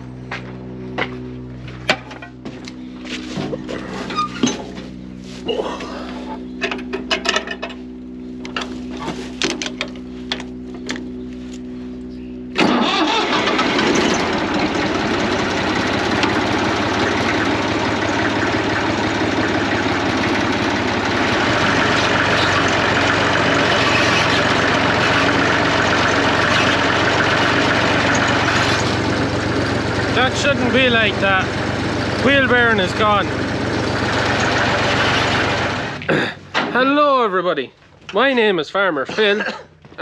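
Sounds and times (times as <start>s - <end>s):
tractor engine running: 0.0s - 40.0s
starter motor whirring with clicks: 12.5s - 17.5s, 18.3s - 29.6s, 33.8s - 36.1s.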